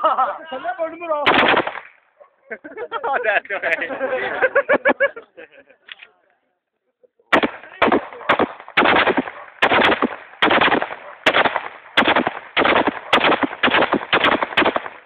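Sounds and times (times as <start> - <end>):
loud echoing bangs: 1.2 - 1.9, 7.3 - 15.0.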